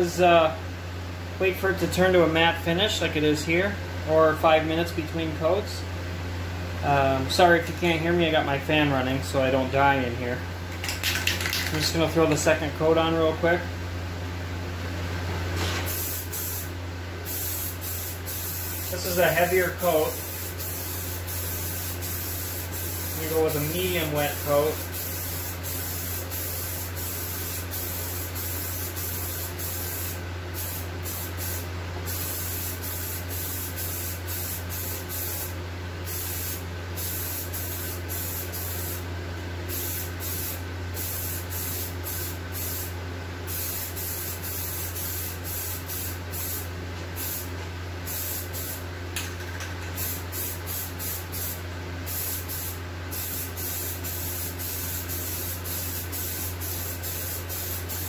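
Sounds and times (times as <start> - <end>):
ventilation fan humming: 0.0 - 58.0
aerosol can spraying: 15.8 - 16.7, 17.3 - 35.5.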